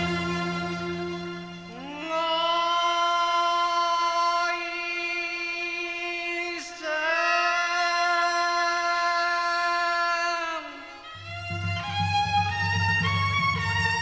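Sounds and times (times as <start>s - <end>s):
steady accompanying tone: 0.0s - 2.1s
man singing opera: 1.7s - 11.1s.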